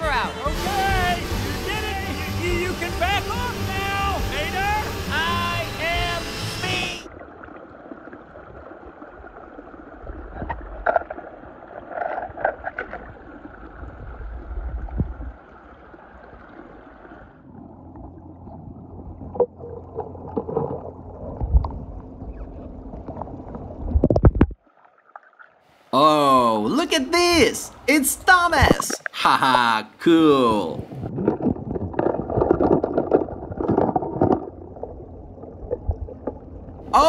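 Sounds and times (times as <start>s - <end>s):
cartoon music and voice: 0.0s - 7.1s, 26.0s - 30.8s
pool water sloshing: 7.1s - 25.9s, 30.8s - 37.0s.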